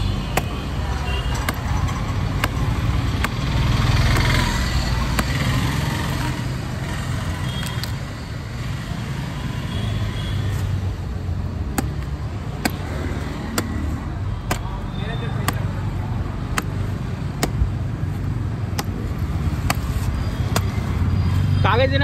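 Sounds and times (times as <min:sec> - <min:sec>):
knife chopping fruit husks: 0:00.0 - 0:06.4, 0:11.5 - 0:20.9
street traffic rumble: 0:00.0 - 0:22.0.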